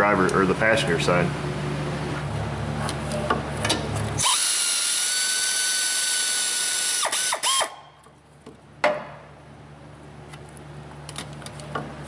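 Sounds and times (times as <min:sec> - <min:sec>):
air ratchet whining: 0:04.2 - 0:07.8.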